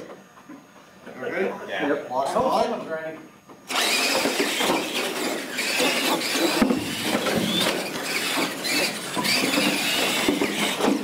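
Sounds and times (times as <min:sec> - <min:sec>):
toy truck electric motors whining: 0:03.7 - 0:11.0.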